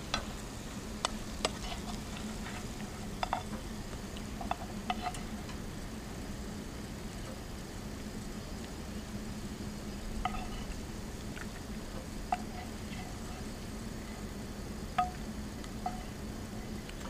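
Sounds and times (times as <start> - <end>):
low steady hum: 0.0 - 17.0
utensil clinking on frying pan: 10.2 - 10.7, 15.0 - 15.2.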